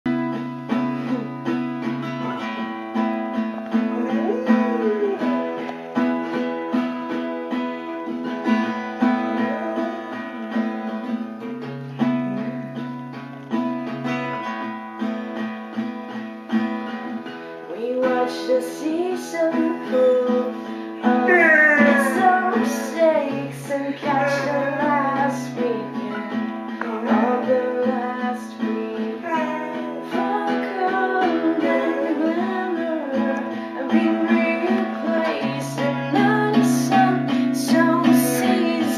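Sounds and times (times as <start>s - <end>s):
acoustic guitar strumming: 0.1s - 38.9s
person singing: 3.7s - 6.3s, 8.4s - 11.2s, 17.7s - 38.9s.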